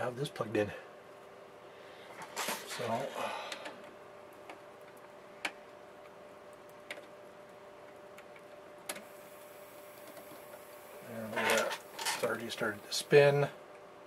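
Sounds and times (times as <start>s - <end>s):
faint steady hum: 0.0s - 14.0s.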